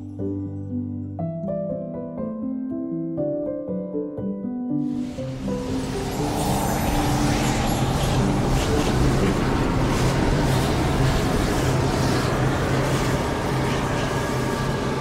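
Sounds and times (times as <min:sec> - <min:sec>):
rumbling whoosh drone: 0:04.9 - 0:15.0
low hum: 0:05.0 - 0:15.0.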